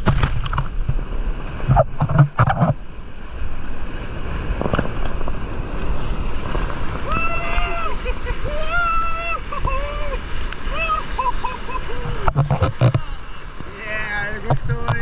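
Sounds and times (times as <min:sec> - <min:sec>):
sea surf and churning water: 0:00.0 - 0:15.0
wind buffeting microphone: 0:00.0 - 0:15.0.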